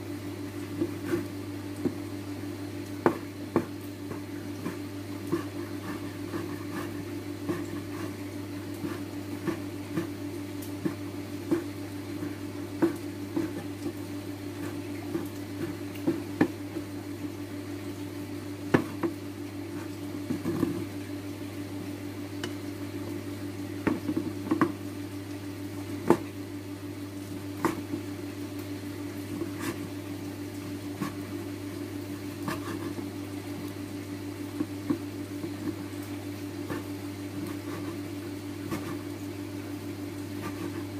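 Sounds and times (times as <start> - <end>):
steady low hum: 0.0 - 40.9
knife chopping on wooden board: 3.0 - 8.1, 10.8 - 13.7, 18.7 - 19.2.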